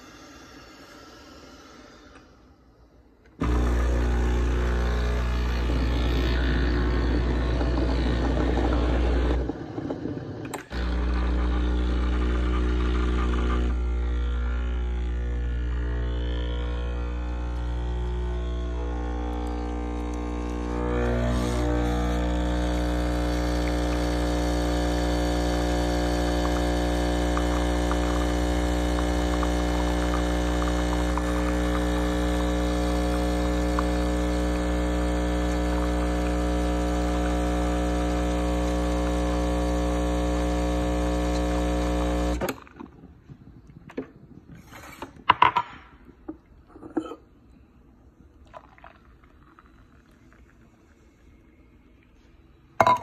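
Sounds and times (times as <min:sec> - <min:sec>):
espresso machine pump humming: 0:03.4 - 0:42.5.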